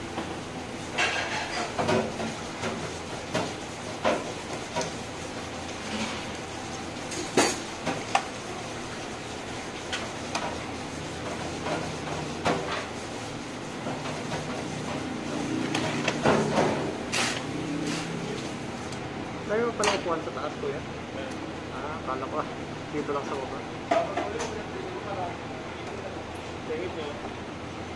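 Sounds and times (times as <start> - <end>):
steady background noise: 0.0 - 27.9
metal pans and utensils clinking: 0.9 - 2.8.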